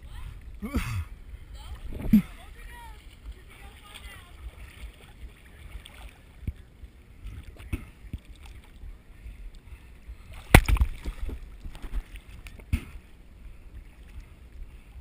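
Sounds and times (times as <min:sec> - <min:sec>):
low steady rumble: 0:00.0 - 0:15.0
sharp splashes on housing: 0:10.4 - 0:11.3
water sloshing against camera housing: 0:10.4 - 0:13.1.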